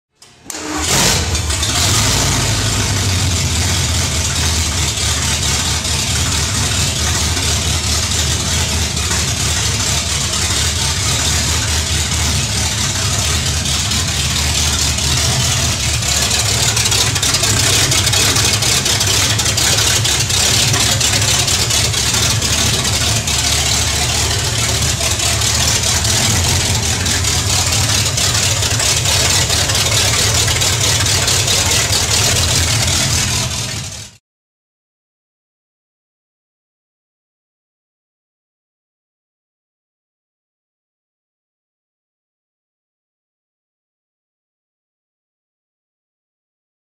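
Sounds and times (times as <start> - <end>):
engine idling deeply: 1.2 - 34.2.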